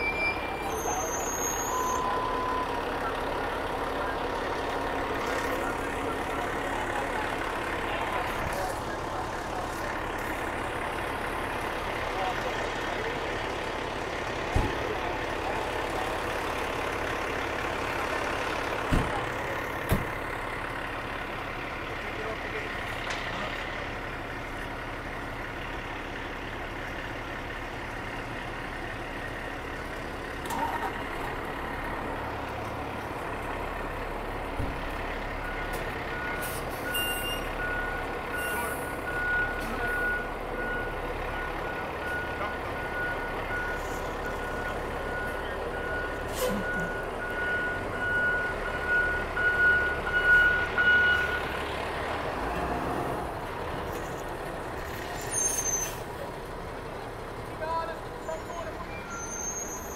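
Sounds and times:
back-up alarm beeping: 0:00.0 - 0:02.8, 0:35.4 - 0:51.5
diesel engine running: 0:00.0 - 0:59.9.

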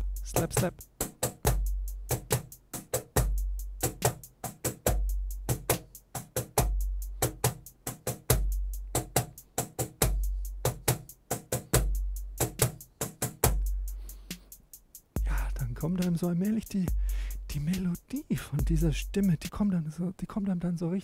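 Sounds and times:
drum machine ticks: 0:00.0 - 0:19.7
deep bass kick: 0:15.2 - 0:15.9, 0:16.9 - 0:17.8, 0:18.6 - 0:19.2.

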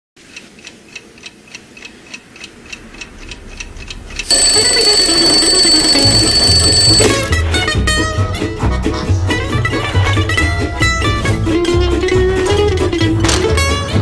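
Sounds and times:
alarm clock ticking: 0:00.3 - 0:07.4
alarm clock bell ringing: 0:04.2 - 0:07.4.

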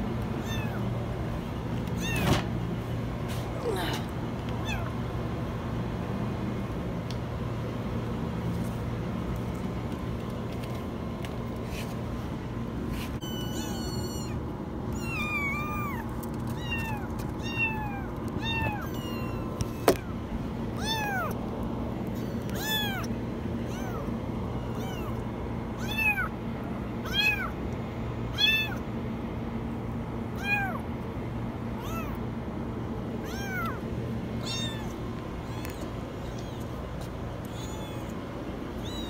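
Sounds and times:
kittens meowing: 0:00.4 - 0:00.9, 0:01.9 - 0:02.5, 0:03.6 - 0:05.0, 0:13.2 - 0:20.2, 0:20.8 - 0:21.4, 0:22.0 - 0:25.2, 0:25.8 - 0:26.3, 0:27.0 - 0:27.6, 0:28.3 - 0:28.8, 0:30.4 - 0:30.8, 0:31.8 - 0:32.2, 0:33.2 - 0:33.8, 0:34.4 - 0:38.2, 0:38.8 - 0:39.0.

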